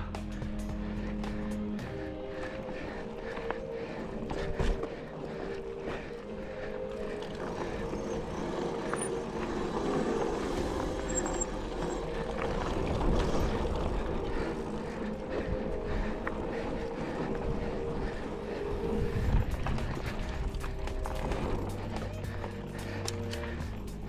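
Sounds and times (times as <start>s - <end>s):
bike rattles and clicks: 0.0s - 24.0s
bike tyre rumble on dirt: 0.0s - 24.0s
wind on microphone: 17.4s - 20.6s.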